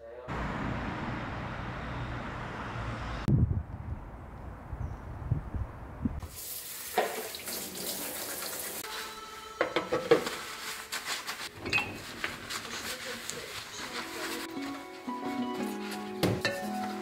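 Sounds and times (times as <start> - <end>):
low wind rumble: 0.4 - 6.2
tap water running into sink: 6.2 - 8.8
scrubber washing a mug: 6.2 - 9.1.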